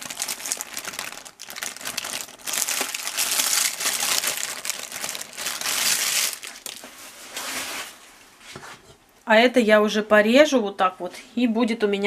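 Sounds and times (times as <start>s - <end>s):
aluminium foil crinkling: 0.0s - 8.0s.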